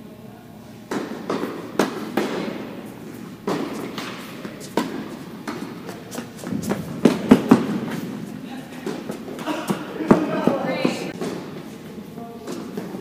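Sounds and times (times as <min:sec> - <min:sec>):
tennis ball bouncing on court: 0:00.9 - 0:02.7, 0:03.4 - 0:08.1
tennis ball struck by rackets: 0:00.9 - 0:08.1.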